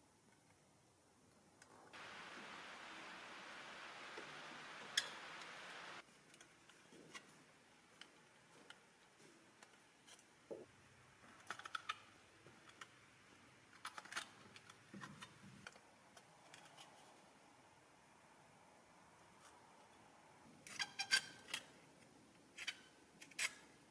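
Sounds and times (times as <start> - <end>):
pliers clicking and scraping metal: 22.5 - 23.7.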